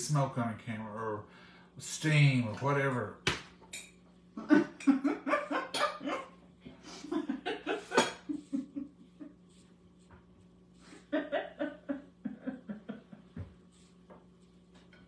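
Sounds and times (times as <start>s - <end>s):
woman laughing: 4.4s - 9.4s, 10.9s - 13.4s.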